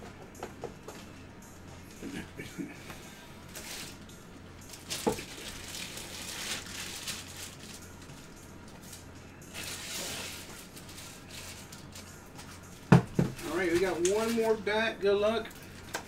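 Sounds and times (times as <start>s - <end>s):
plastic wrapping crinkling: 3.4s - 16.0s.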